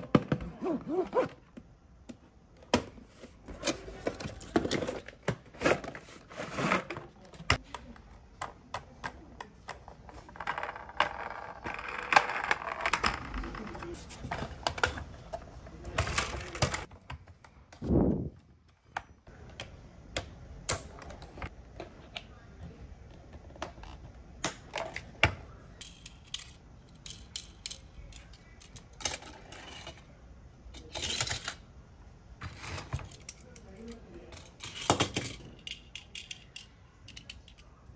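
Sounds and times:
plastic toy parts clicking: 34.7s - 37.7s.

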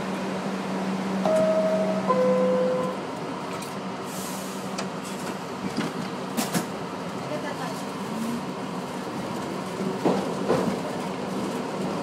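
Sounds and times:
two-tone descending door chime: 1.2s - 3.0s.

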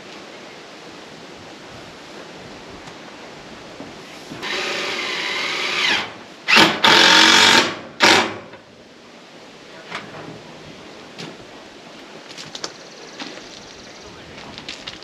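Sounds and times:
power drill driving screws: 4.4s - 8.5s.

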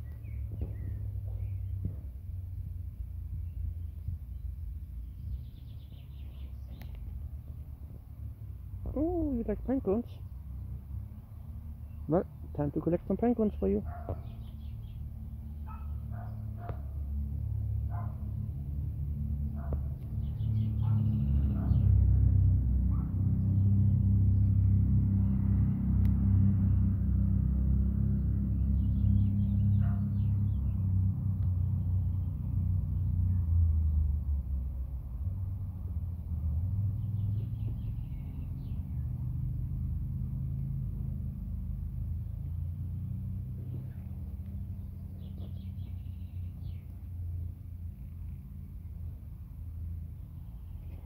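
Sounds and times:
bird chirping: 0.0s - 17.1s, 19.4s - 22.1s, 28.0s - 34.1s, 36.8s - 39.5s, 43.6s - 49.4s, 50.0s - 51.0s
low rumbling engine hum: 0.0s - 51.0s.

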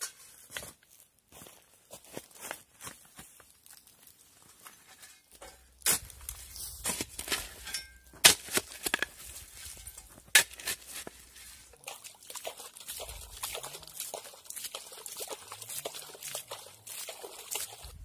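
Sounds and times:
gritty scraping: 3.8s - 11.8s
shovel striking stony soil: 4.9s - 11.8s
water pouring onto dirt: 5.6s - 18.0s.

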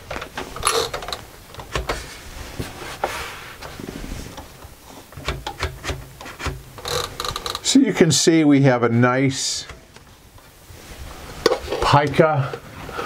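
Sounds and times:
typewriter platen ratchet clicking: 0.6s - 2.0s, 5.2s - 7.6s.

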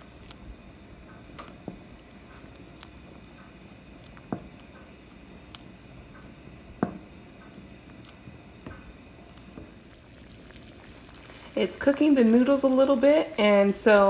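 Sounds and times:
soup simmering: 0.0s - 14.0s
soft pops: 1.0s - 11.4s
wooden spoon stirring soup: 1.1s - 14.0s.

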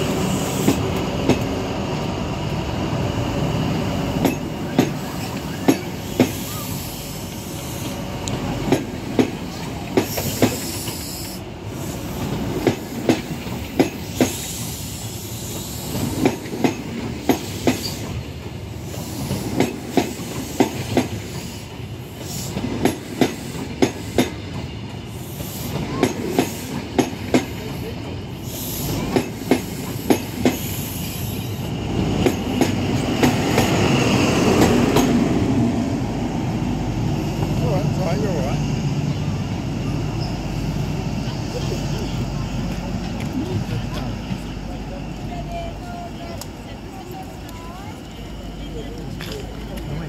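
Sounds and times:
train wheels clicking over rail joints: 0.0s - 1.6s, 3.8s - 35.4s
train power car: 0.0s - 50.0s
train rolling rumble: 0.0s - 50.0s.

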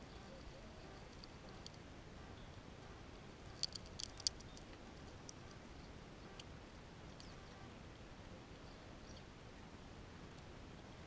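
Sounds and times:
squirrel gnawing nut shell: 3.4s - 5.6s
teeth clicking on shell: 3.5s - 5.4s
shell cracking: 3.6s - 4.7s.

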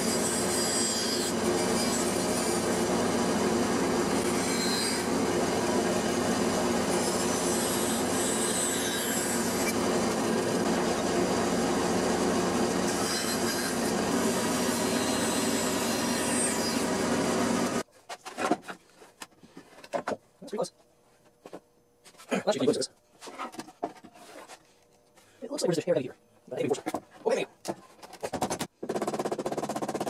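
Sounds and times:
bandsaw cutting plywood: 0.0s - 17.8s.

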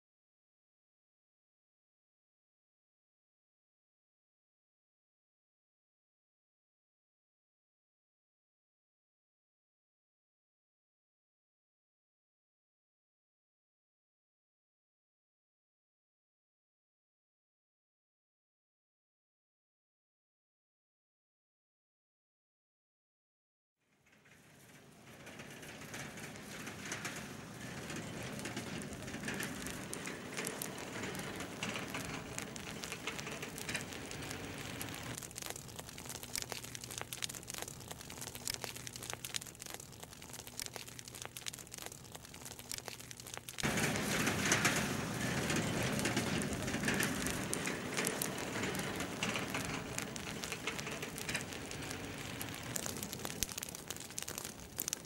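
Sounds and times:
straw fires crackling and popping: 23.9s - 55.0s.

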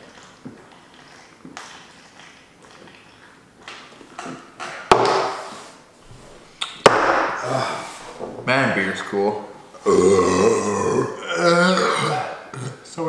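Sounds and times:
person gulping: 9.7s - 12.9s.

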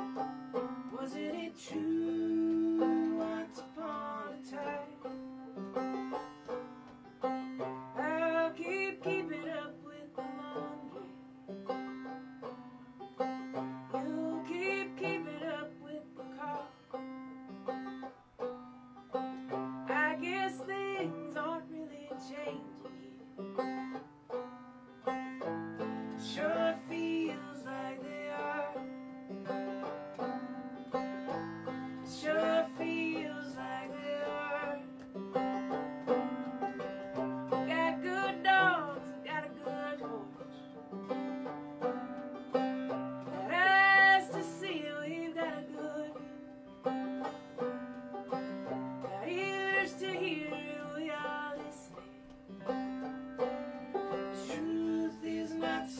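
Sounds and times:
picked banjo: 0.0s - 55.9s
strummed acoustic guitar: 0.0s - 55.9s
woman singing: 0.9s - 5.2s, 8.0s - 11.3s, 13.9s - 16.8s, 19.8s - 23.2s, 26.0s - 28.9s, 32.0s - 35.0s, 37.4s - 40.6s, 43.2s - 46.5s, 49.0s - 52.2s, 54.1s - 55.9s.

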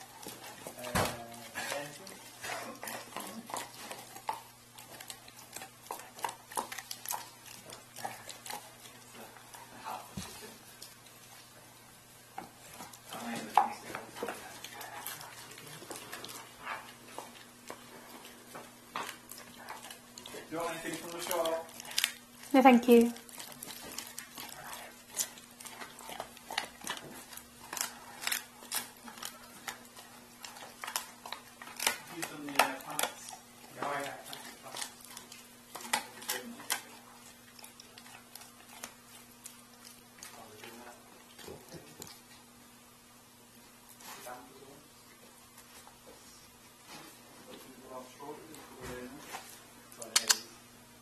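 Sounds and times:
dog chewing bones: 0.0s - 50.5s
faint steady hum: 0.0s - 51.0s
bones cracking: 17.2s - 22.5s, 23.2s - 40.4s.

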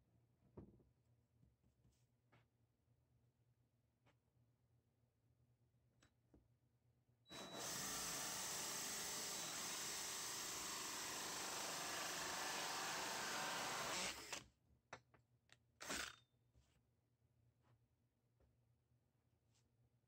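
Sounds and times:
drill cutting through wood: 7.3s - 14.4s, 15.8s - 16.1s.

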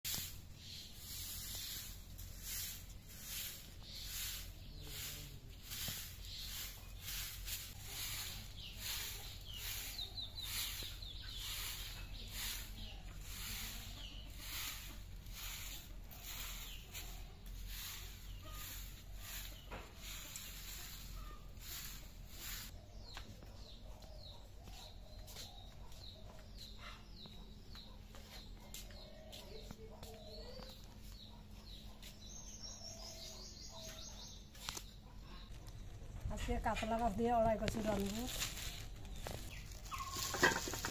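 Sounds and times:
broom sweeping floor: 0.0s - 23.2s, 36.9s - 40.9s
bird chirping: 3.3s - 15.6s, 16.2s - 40.9s
lower bird calls: 38.4s - 40.8s.

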